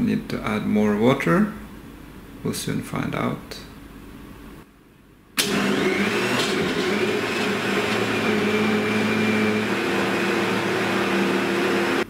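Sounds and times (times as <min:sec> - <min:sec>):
blender running: 0:05.4 - 0:12.0.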